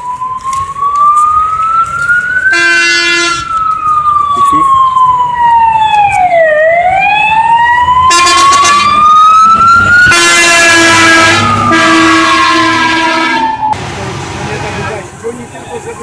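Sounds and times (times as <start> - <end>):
fire engine siren wailing: 0.0 - 16.0
loud horn: 2.5 - 3.5, 8.1 - 9.0, 10.0 - 13.6.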